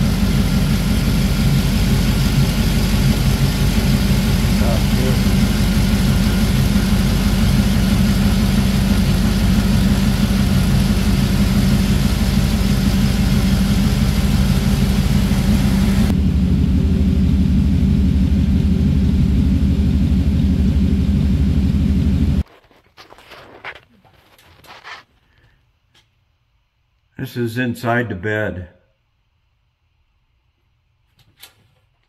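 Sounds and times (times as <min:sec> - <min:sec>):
pickup engine idling: 0:00.0 - 0:22.4.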